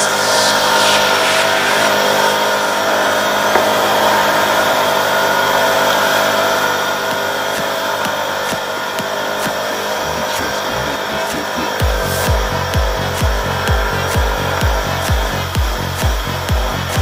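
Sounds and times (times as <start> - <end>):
atv engine running: 3.5 - 17.0.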